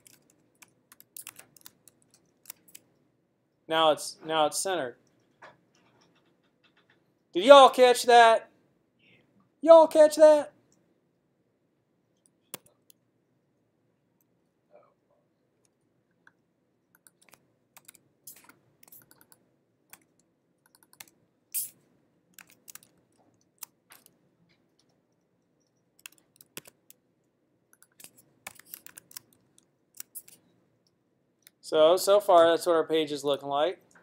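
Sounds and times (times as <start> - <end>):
computer keystrokes and clicks: 0.0 - 3.1, 5.0 - 7.3, 12.2 - 13.0, 15.6 - 31.6.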